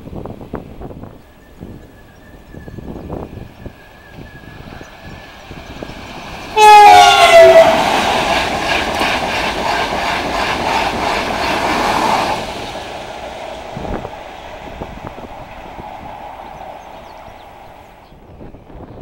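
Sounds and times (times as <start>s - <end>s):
train horn: 6.5s - 8.1s
train wheels clattering over rail joints: 7.8s - 17.8s.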